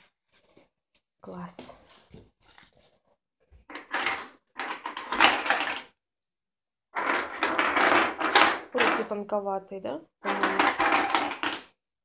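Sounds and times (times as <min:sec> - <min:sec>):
clothing and packaging rustling: 0:00.0 - 0:03.8.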